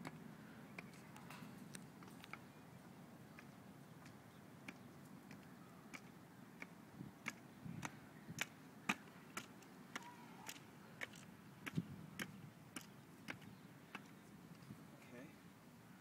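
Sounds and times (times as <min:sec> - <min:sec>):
stilt footsteps clicking: 0:03.3 - 0:14.6.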